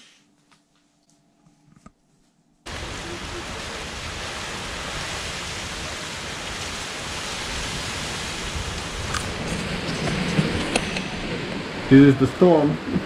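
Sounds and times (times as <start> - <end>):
heavy rain pouring: 2.7 - 13.0.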